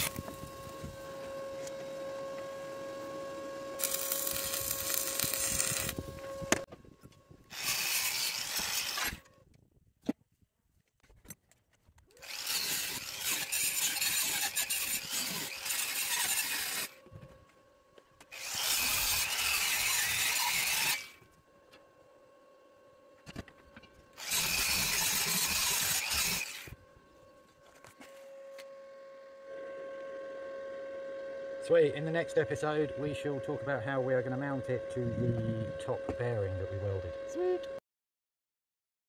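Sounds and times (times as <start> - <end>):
angle grinder grinding metal: 0.0 - 6.7, 7.5 - 9.3, 12.2 - 17.0, 18.3 - 21.2, 24.2 - 26.8, 31.6 - 37.8
grinder motor whining: 0.0 - 9.4, 12.1 - 37.8.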